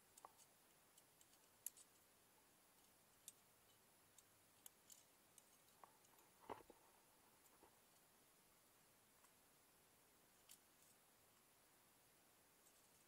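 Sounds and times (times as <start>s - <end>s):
faint small clicks: 0.1s - 2.0s.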